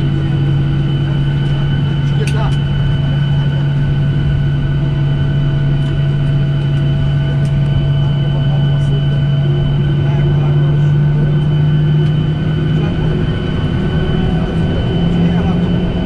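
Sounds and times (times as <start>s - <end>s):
aircraft cabin engine hum: 0.0s - 16.0s.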